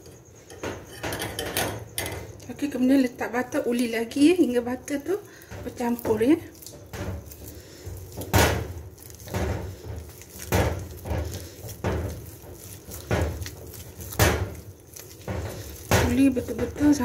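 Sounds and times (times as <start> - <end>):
dough thumping into a bowl: 5.4 - 17.0.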